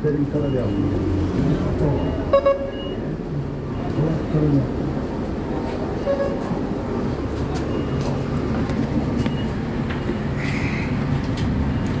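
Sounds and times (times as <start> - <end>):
bus drivetrain rumble: 0.0 - 12.0.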